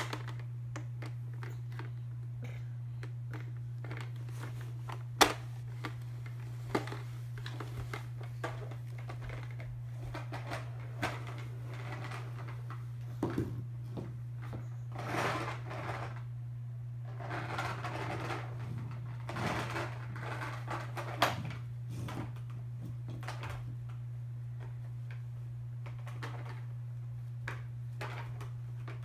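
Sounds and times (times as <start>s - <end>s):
steady low hum: 0.0s - 29.0s
toy train rolling on wood floor: 5.8s - 12.8s, 14.9s - 16.2s, 17.1s - 22.1s.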